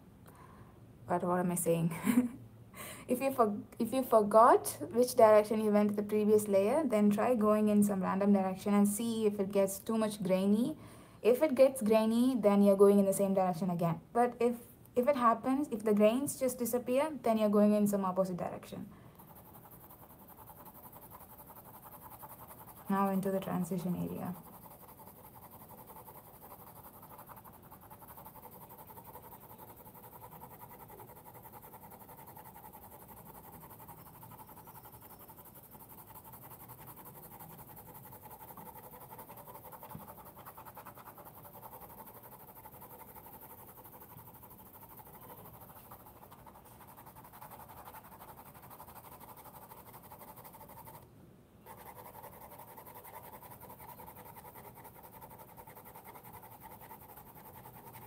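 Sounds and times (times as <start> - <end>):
colored pencil scratching on paper: 19.2 - 51.0, 51.6 - 58.0
low background hiss: 43.8 - 52.8.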